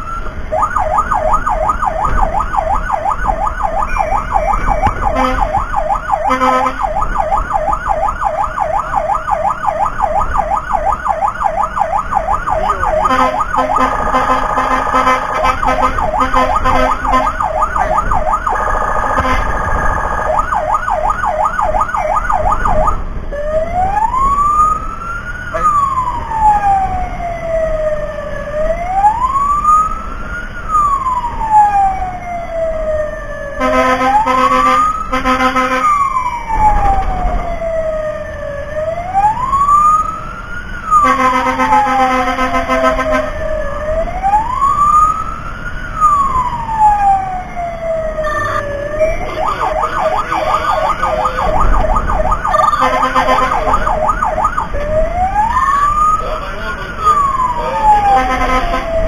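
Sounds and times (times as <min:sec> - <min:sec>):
siren yelp and wail: 0:00.0 - 0:59.0
steady horn note: 0:13.1 - 0:17.3, 0:19.2 - 0:19.6, 0:52.8 - 0:53.8, 0:58.1 - 0:58.9.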